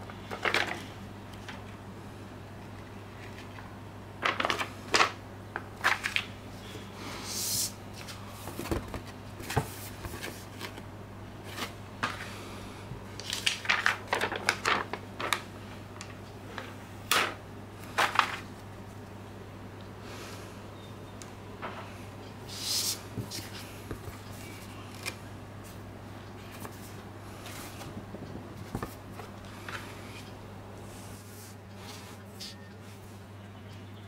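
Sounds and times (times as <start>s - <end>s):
steady low hum: 0.0s - 34.0s
plastic sticker sheet crinkling: 13.2s - 15.5s.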